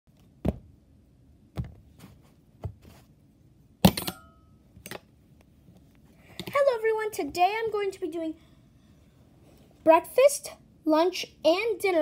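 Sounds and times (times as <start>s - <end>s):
metallic ring: 4.0s - 4.6s.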